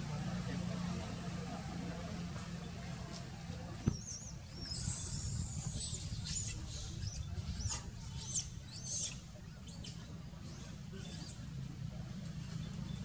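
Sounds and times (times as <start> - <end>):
baby monkey squeaking: 4.0 - 9.2.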